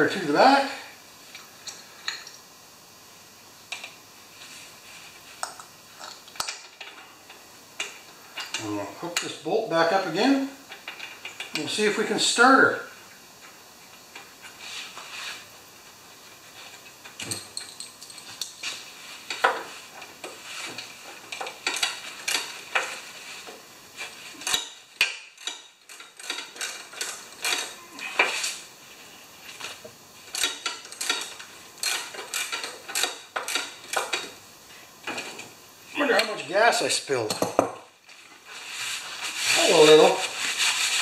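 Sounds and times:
tools clinking on metal: 17.2 - 18.5.

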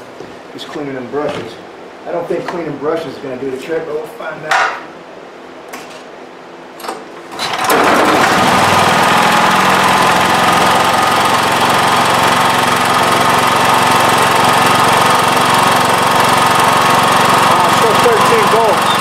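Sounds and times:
generator engine running: 7.3 - 19.0.

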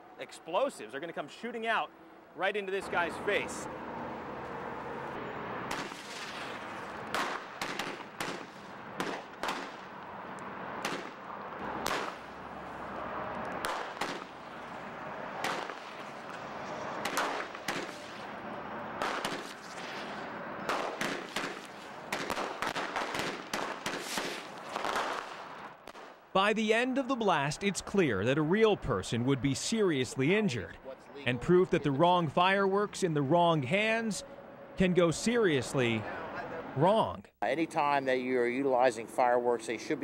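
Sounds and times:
fireworks bangs: 5.6 - 10.0, 11.8 - 12.4, 13.6 - 14.6, 15.4 - 18.4, 19.0 - 26.2
firework hiss: 19.2 - 20.3, 23.8 - 25.5.

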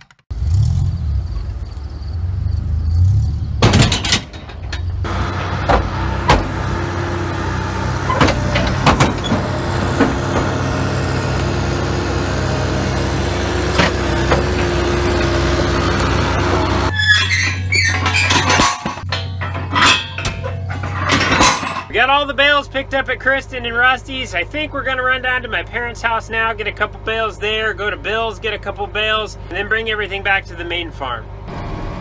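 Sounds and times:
metal clanks and knocks: 3.6 - 11.2, 12.4 - 22.0
vehicle engine running: 4.4 - 16.9.

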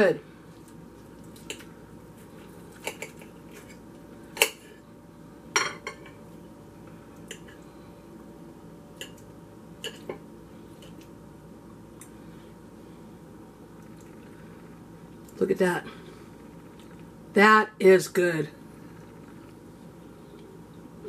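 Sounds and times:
cutlery clinking on a bowl: 9.8 - 10.2.

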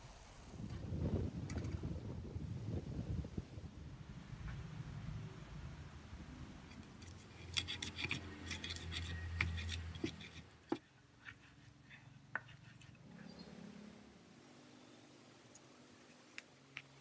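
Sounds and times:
pestle clacking and scraping in mortar: 6.7 - 13.0.

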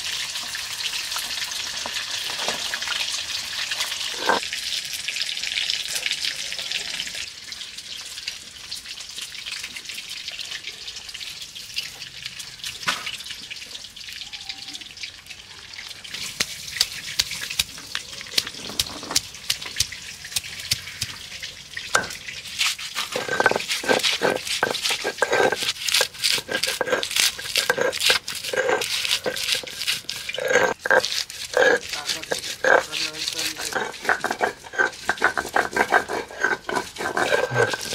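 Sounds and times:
water trickling onto stone: 0.0 - 37.9
stone roller grinding on stone slab: 3.8 - 4.4, 18.3 - 20.8, 21.9 - 37.9.

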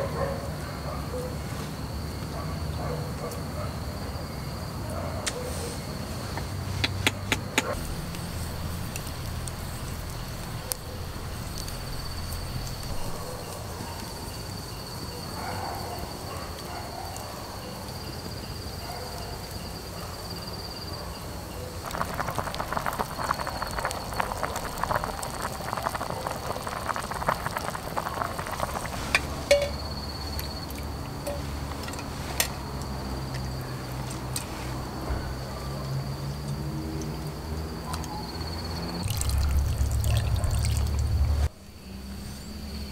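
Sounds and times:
night insects trilling: 0.0 - 42.9
campfire crackling and popping: 6.8 - 13.6, 21.8 - 31.2, 39.0 - 41.5.

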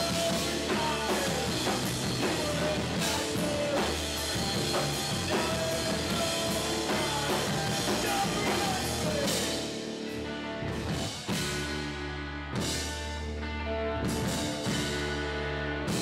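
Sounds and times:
drum and cymbal accents: 0.0 - 10.2
bass guitar: 0.0 - 16.0
electric guitar: 0.0 - 16.0.

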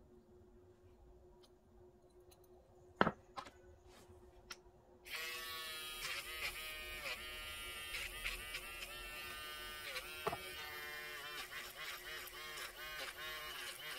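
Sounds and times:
electric nail drill whining: 5.1 - 13.9.

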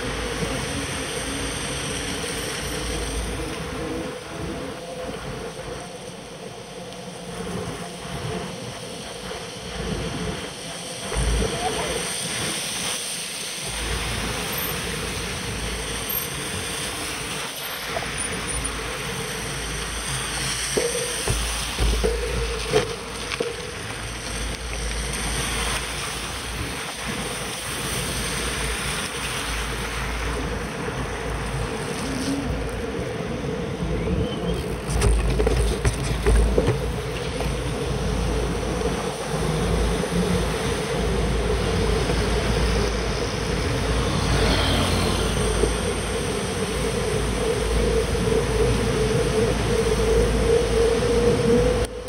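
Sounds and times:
bicycle rolling on wet pavement: 0.0 - 52.0
cars passing on wet road: 0.0 - 52.0
wind rumble on microphone: 0.0 - 52.0
bicycle bumps: 20.7 - 25.4, 34.6 - 38.0.

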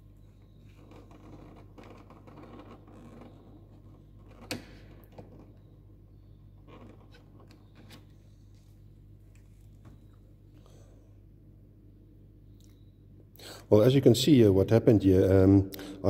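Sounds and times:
steady low hum: 0.0 - 16.0
plastic scraping and rubbing: 0.6 - 5.7, 6.6 - 8.2.

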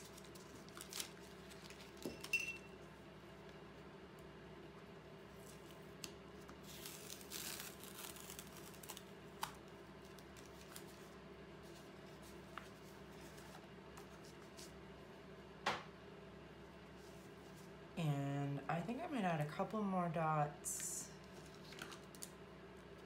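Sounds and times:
tape peeling off paper: 0.0 - 2.0, 6.0 - 11.0
faint steady hum: 0.0 - 23.0.

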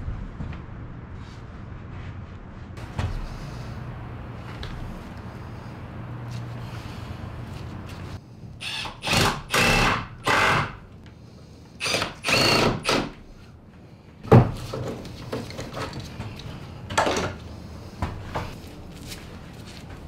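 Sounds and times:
cordless drill whining: 8.6 - 10.8, 11.8 - 13.2.

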